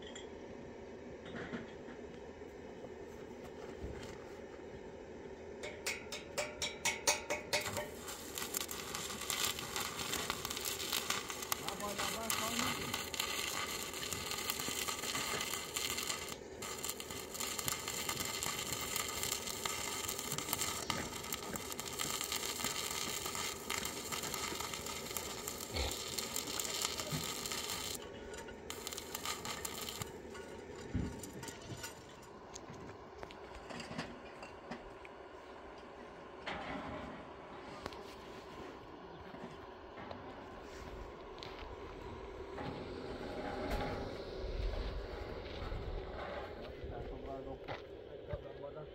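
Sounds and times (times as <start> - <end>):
welding arc crackling and sizzling: 5.6 - 32.6.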